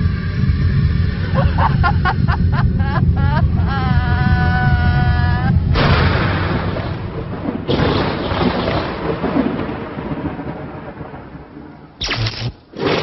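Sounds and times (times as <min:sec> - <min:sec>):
loud rumbling with hiss: 0:00.0 - 0:10.2.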